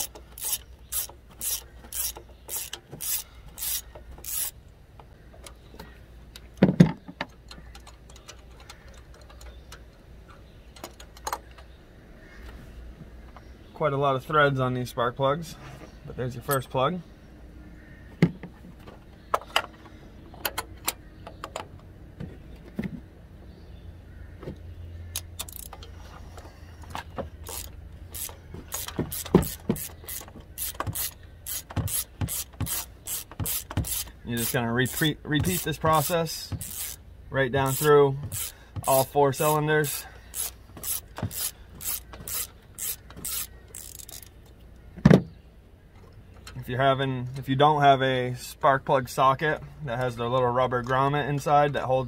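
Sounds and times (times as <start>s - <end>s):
hand tools clicking and clinking: 0.0s - 4.6s, 25.2s - 37.0s
ratchet clicks: 0.0s - 4.6s, 25.1s - 25.9s, 27.4s - 37.0s, 37.6s - 44.6s.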